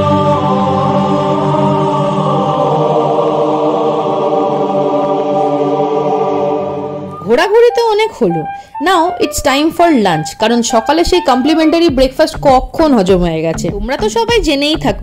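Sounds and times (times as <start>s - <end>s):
group chanting: 0.0s - 7.2s.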